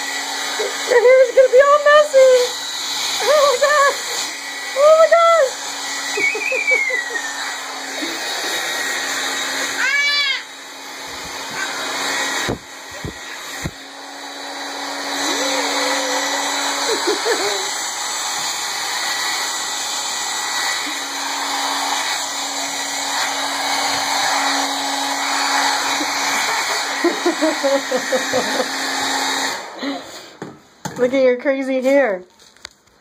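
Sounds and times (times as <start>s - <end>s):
hair dryer running: 0.0s - 32.0s
toddler shrieking with laughter: 6.3s - 7.4s, 9.6s - 10.6s.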